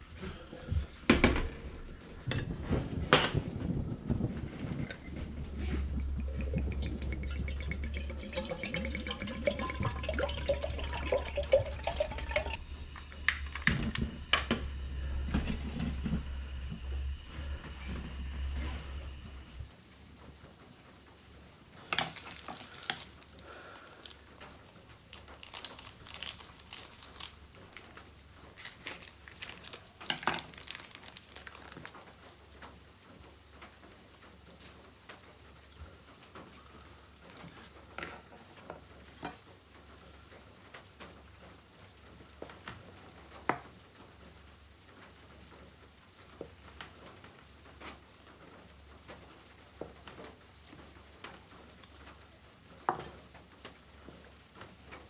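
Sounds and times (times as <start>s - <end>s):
plastic wrapping crinkling: 21.8s - 32.4s.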